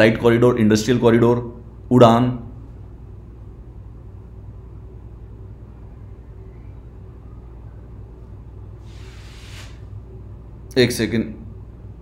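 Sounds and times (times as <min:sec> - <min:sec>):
low room hum: 0:00.0 - 0:12.0
soft hiss: 0:08.7 - 0:10.2.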